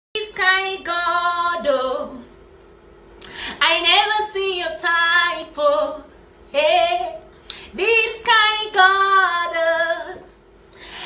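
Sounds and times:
woman singing unaccompanied: 0:00.2 - 0:02.3, 0:03.6 - 0:10.3
woman breathing: 0:03.2 - 0:03.6, 0:10.7 - 0:11.0.

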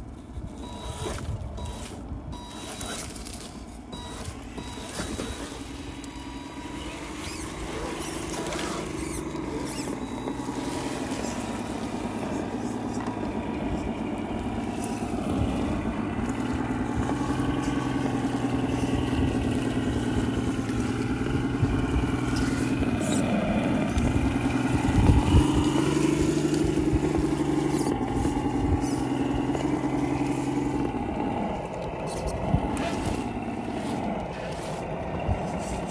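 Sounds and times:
electric motors whining: 0:00.0 - 0:35.9.

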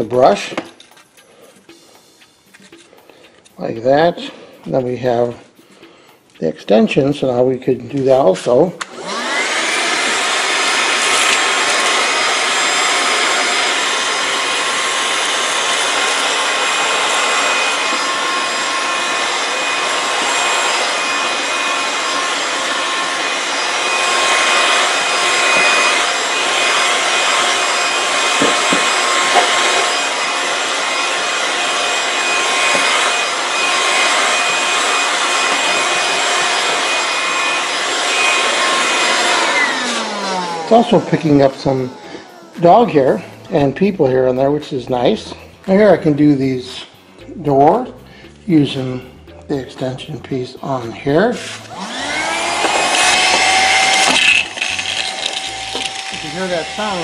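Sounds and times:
handheld vacuum motor whine: 0:07.9 - 0:45.8, 0:50.7 - 0:57.0
brush nozzle scrubbing carpet: 0:09.0 - 0:44.5, 0:51.1 - 0:57.0.

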